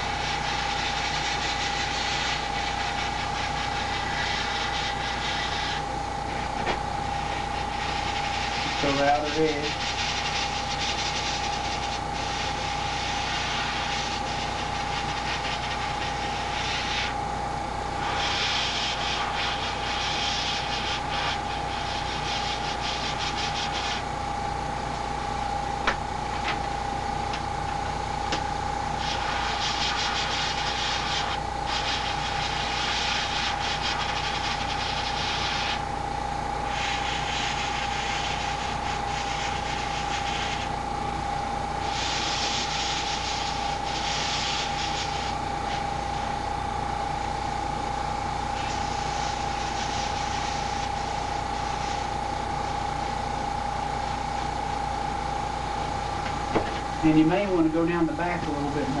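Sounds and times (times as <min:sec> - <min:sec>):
airbrush spraying hiss: 0:00.0 - 0:17.2, 0:18.0 - 0:24.0, 0:29.0 - 0:35.8, 0:36.7 - 0:40.7, 0:41.8 - 0:45.8, 0:48.6 - 0:52.1
high-pitched whine: 0:00.0 - 0:17.4.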